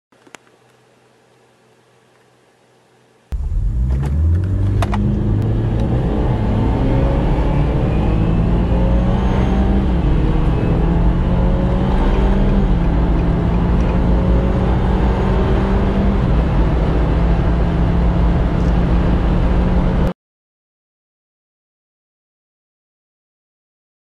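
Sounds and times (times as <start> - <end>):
car engine accelerating: 3.3 - 20.1
road and wind noise: 3.3 - 20.1.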